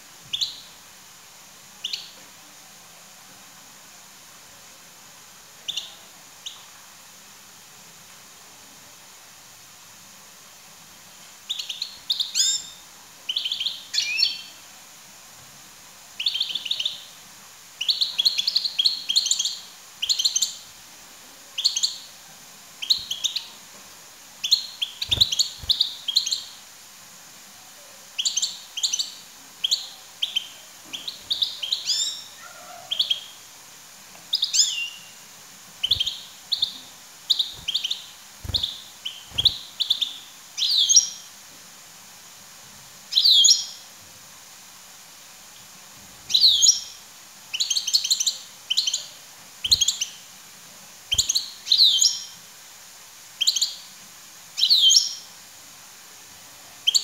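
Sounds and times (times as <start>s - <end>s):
finch chirps and twitters: 11.5s - 14.5s, 22.8s - 23.5s, 24.4s - 26.5s, 28.2s - 33.4s, 35.8s - 41.2s, 46.3s - 47.0s, 47.6s - 50.2s, 51.1s - 52.4s, 54.6s - 55.2s.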